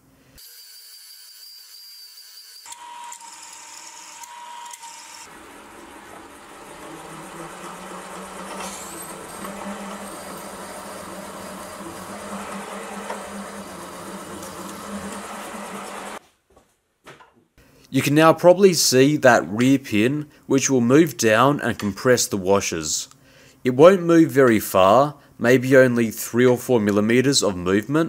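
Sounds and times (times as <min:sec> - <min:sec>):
mill spindle motor whine: 0:00.4 - 0:16.2
reamer cutting metal: 0:00.4 - 0:16.2.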